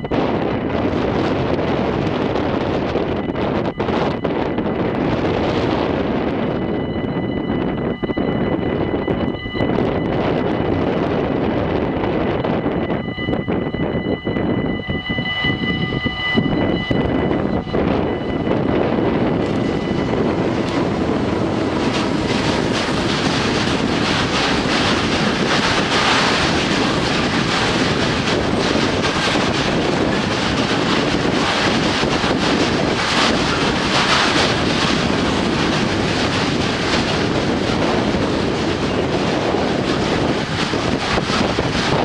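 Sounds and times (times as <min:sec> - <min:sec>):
freight train wheels rumbling: 0:00.0 - 0:42.0
wheels clattering over rail joints: 0:17.1 - 0:42.0.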